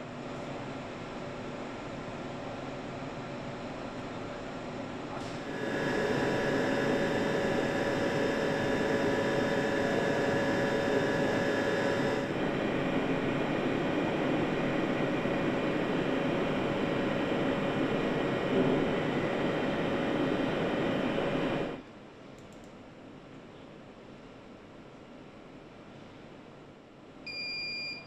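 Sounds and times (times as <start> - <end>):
engine humming on test bench: 5.2 - 21.8.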